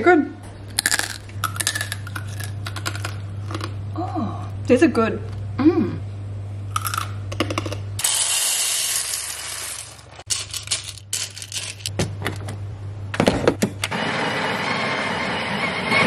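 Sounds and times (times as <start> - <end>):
coffee beans clicking in grinder: 0.8 - 3.7, 6.8 - 11.9
coffee grinder running: 7.6 - 11.9.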